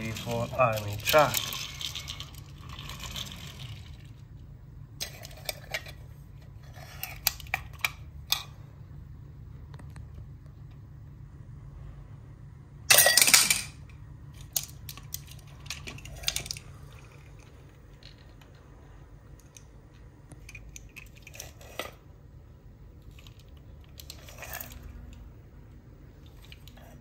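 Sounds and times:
plastic toy rattling: 0:00.0 - 0:04.2, 0:14.3 - 0:18.5, 0:23.0 - 0:25.2.

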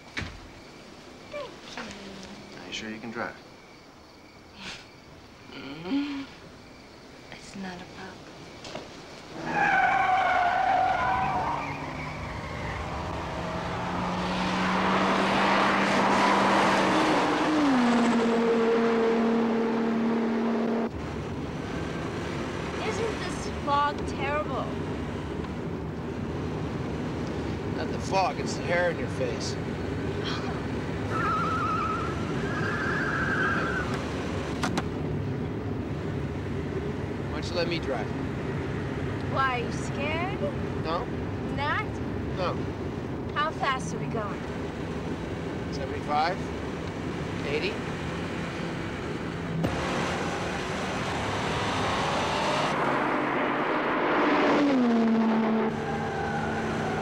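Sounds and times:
wind and road noise in car: 0:06.4 - 0:57.0
car tyres squealing: 0:09.3 - 0:20.9, 0:30.0 - 0:34.7, 0:49.6 - 0:57.0.

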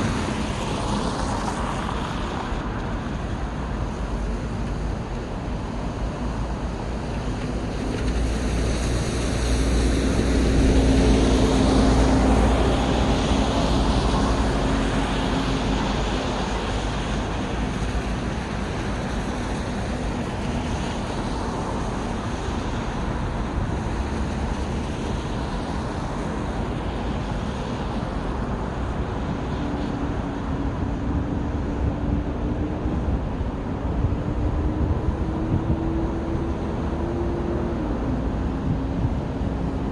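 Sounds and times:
steady engine hum: 0:00.0 - 0:39.9
traffic noise: 0:00.0 - 0:39.9
vehicle passing close by: 0:08.1 - 0:18.1.

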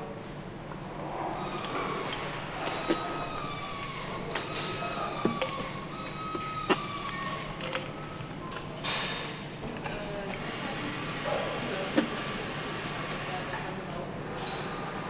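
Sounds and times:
workshop hum: 0:00.0 - 0:15.0.

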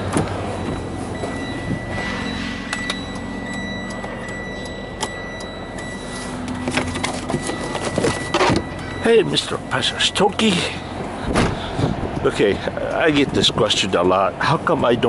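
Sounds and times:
high warning tone: 0:00.0 - 0:11.3
low hum: 0:00.0 - 0:12.2.

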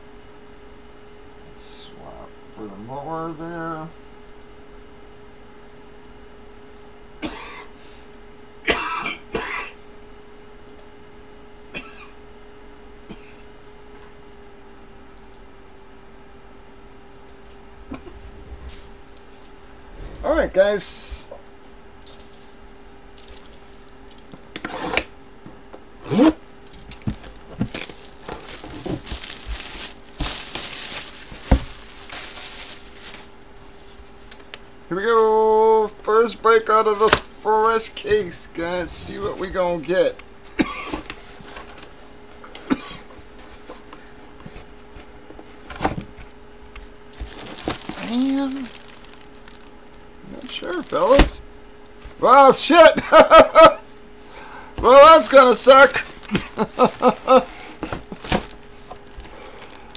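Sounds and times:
faint steady hum: 0:00.0 - 0:59.9
man coughing: 0:07.2 - 0:07.8, 0:08.6 - 0:09.8, 0:11.7 - 0:12.2, 0:13.1 - 0:13.5, 0:40.5 - 0:41.0, 0:42.6 - 0:43.1
plastic wrap tearing and crinkling: 0:23.1 - 0:24.4, 0:26.7 - 0:33.9, 0:47.1 - 0:51.5, 0:55.8 - 0:59.9.

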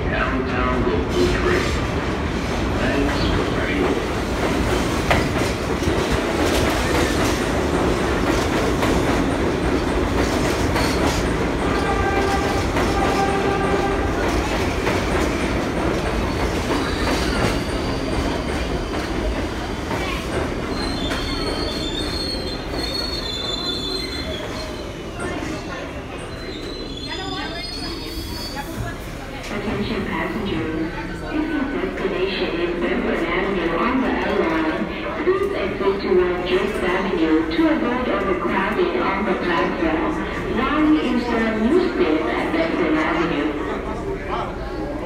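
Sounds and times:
train wheels rumbling on rail: 0:00.0 - 0:45.0
train wheels squealing: 0:16.8 - 0:18.7, 0:20.6 - 0:28.8.

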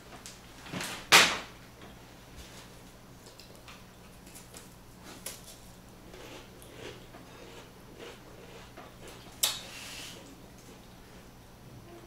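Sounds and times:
crackers being chewed: 0:03.2 - 0:09.6.

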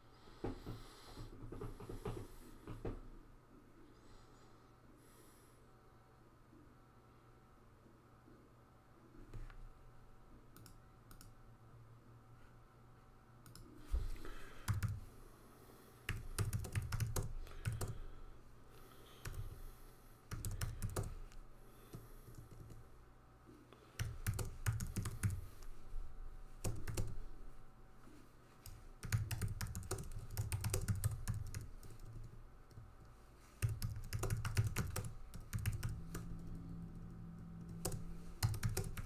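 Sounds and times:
typing on computer keyboard: 0:14.6 - 0:15.0, 0:16.1 - 0:18.0, 0:19.2 - 0:19.5, 0:20.3 - 0:21.2, 0:24.0 - 0:25.6, 0:26.6 - 0:27.2, 0:28.6 - 0:32.8, 0:33.6 - 0:36.5, 0:37.6 - 0:39.0.

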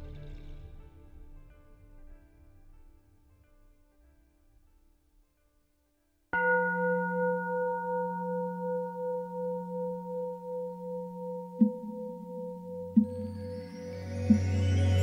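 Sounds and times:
singing bowl ringing: 0:06.4 - 0:15.0.

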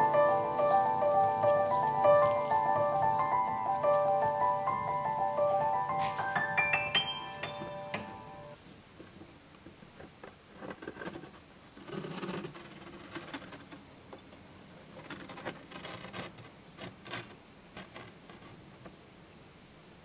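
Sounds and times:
cardboard rustle: 0:10.0 - 0:13.8, 0:14.8 - 0:18.9
clicks and scrapes of cardboard door: 0:10.0 - 0:13.8, 0:14.8 - 0:18.9.

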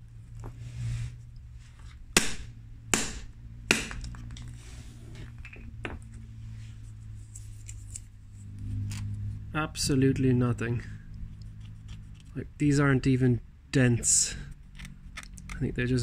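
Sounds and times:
hammer striking resin disc: 0:02.2 - 0:04.2.

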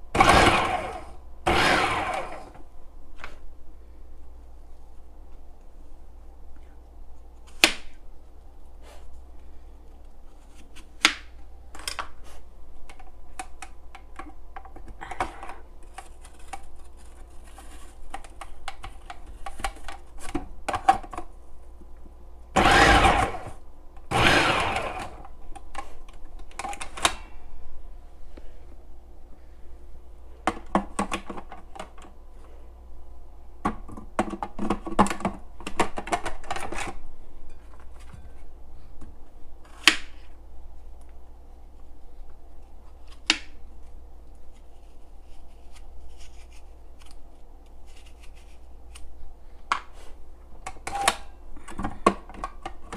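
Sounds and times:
food processor motor hum: 0:00.1 - 0:02.6, 0:22.6 - 0:25.2.

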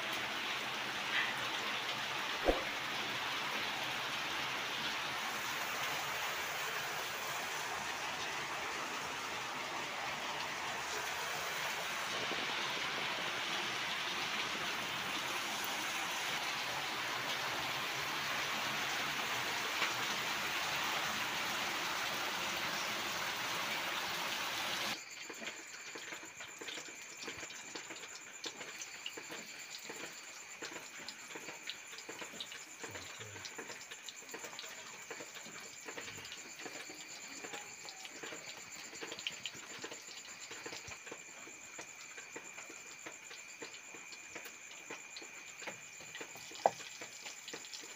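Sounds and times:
water pouring over fish: 0:46.0 - 0:47.9.

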